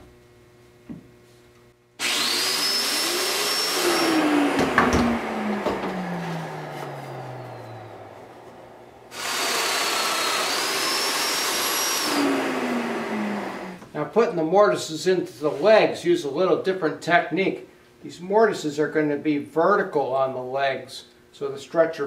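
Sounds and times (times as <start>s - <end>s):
power joiner whining: 2.0s - 13.8s
dust extractor running: 2.0s - 13.9s.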